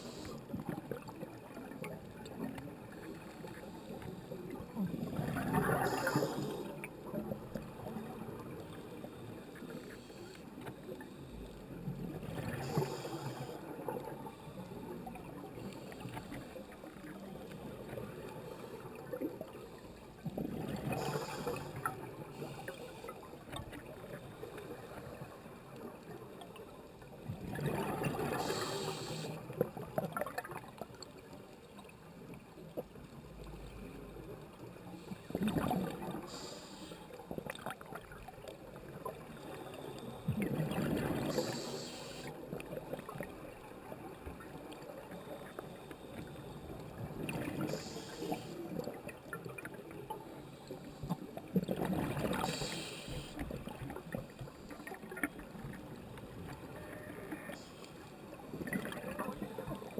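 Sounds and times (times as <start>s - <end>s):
muffled underwater hiss: 0.0s - 59.9s
regulator breathing underwater: 5.6s - 6.8s, 12.4s - 13.7s, 20.9s - 23.2s, 28.2s - 29.4s, 36.1s - 37.1s, 41.2s - 42.4s, 47.5s - 48.7s, 52.3s - 53.5s
bubbles gurgling: 51.5s - 52.5s, 58.5s - 59.9s.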